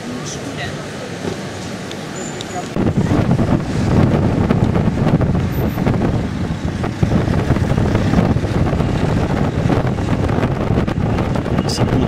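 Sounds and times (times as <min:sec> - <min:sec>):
moving car rumble: 0:00.0 - 0:12.0
wind buffeting microphone: 0:02.6 - 0:12.0.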